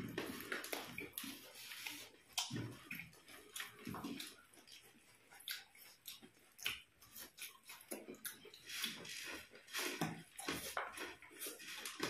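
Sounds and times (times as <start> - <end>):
rustling of rice in plates: 0.0 - 5.0, 8.4 - 12.0
crunching puffed rice: 0.0 - 12.0.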